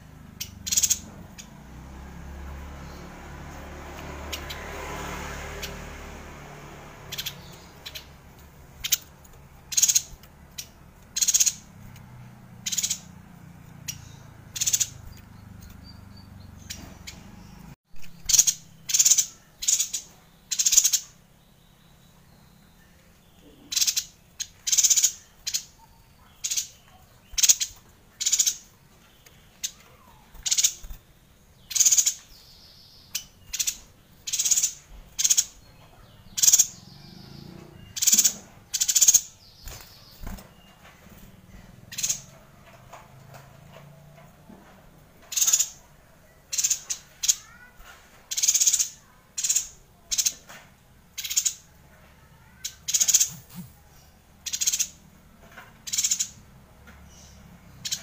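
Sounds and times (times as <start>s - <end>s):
bird calling in sharp bursts: 0.0s - 17.4s, 23.5s - 28.8s, 29.4s - 32.5s, 33.1s - 40.7s, 45.3s - 50.5s, 51.1s - 55.0s.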